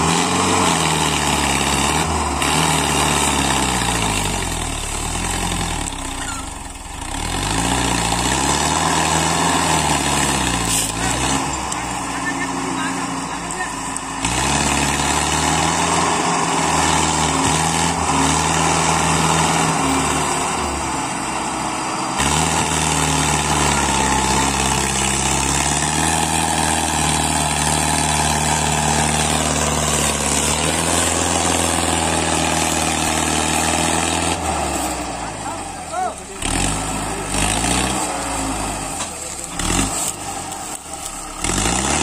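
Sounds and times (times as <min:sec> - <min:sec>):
tractor diesel engine running: 0:00.0 - 0:42.0.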